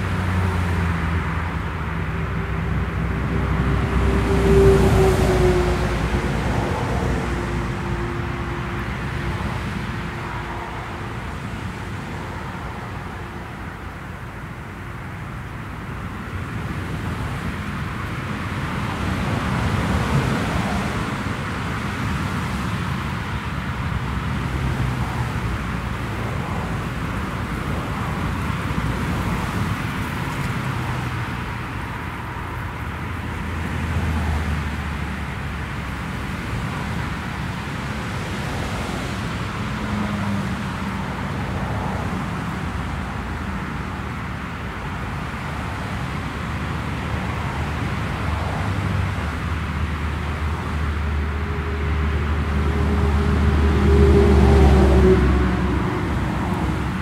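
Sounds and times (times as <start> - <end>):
low propeller hums: 49.9 - 57.0
turboprop engines droning: 50.3 - 57.0.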